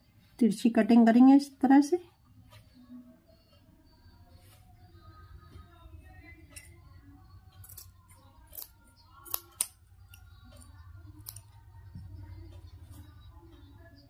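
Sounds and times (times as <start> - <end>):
scissors snipping fabric: 7.6 - 11.6.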